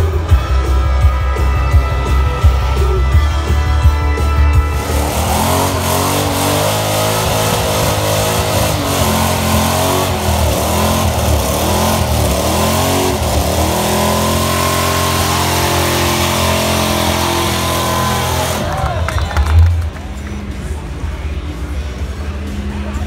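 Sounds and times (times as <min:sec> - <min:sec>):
rock music: 0:00.0 - 0:23.0
car engine revving hard: 0:04.7 - 0:19.1.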